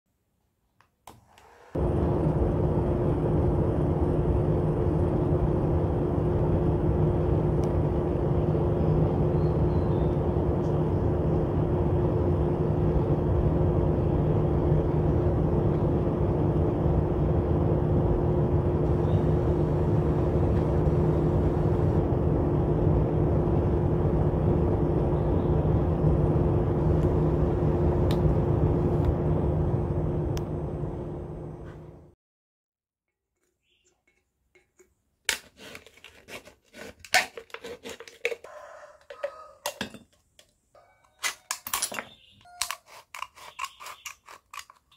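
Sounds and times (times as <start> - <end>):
small motor fan whirring: 1.1 - 32.1.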